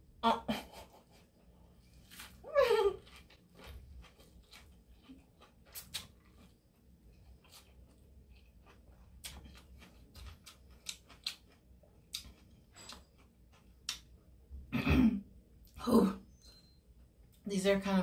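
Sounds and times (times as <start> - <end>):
lettuce crunching: 1.9 - 14.1
chewing with wet mouth clicks: 3.0 - 14.3.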